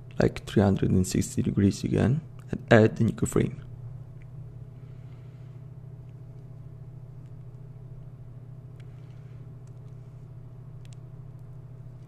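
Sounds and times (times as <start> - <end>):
low background hum: 0.0 - 12.0
faint clicks: 10.8 - 11.5.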